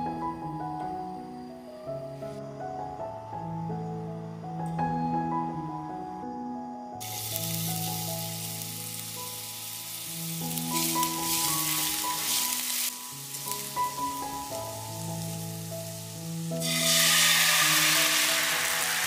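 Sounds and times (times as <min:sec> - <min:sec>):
background music: 0:00.0 - 0:19.0
garlic sizzling in oil: 0:07.0 - 0:19.0.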